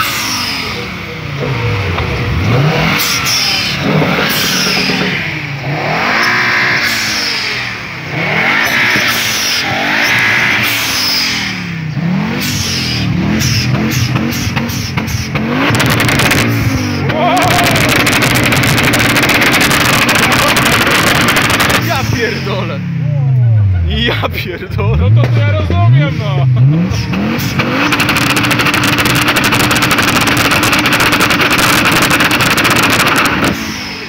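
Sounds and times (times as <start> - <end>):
car engine revving: 0.0 - 34.0
exhaust pops and crackles: 3.0 - 5.3, 13.4 - 22.6, 24.0 - 26.2, 26.9 - 33.7.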